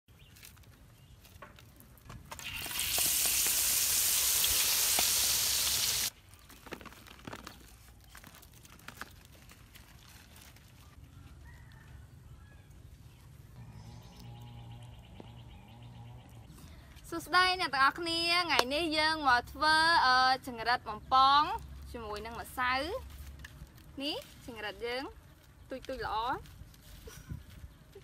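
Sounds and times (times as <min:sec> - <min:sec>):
deep-frying sizzle in hot oil: 0:02.4 - 0:06.1
faint clicks and rustles: 0:06.1 - 0:12.0.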